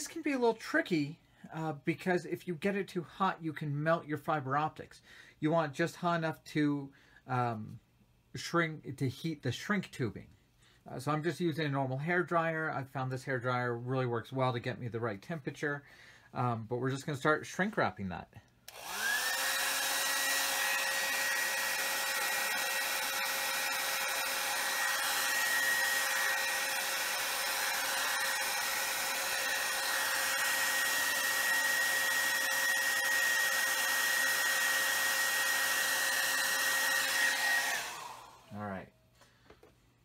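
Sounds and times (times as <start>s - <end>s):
hair dryer running: 18.7s - 38.6s.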